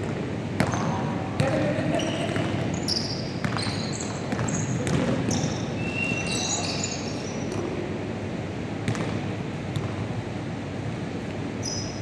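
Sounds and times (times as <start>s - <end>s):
sneakers squeaking on hardwood: 2.0s - 7.5s.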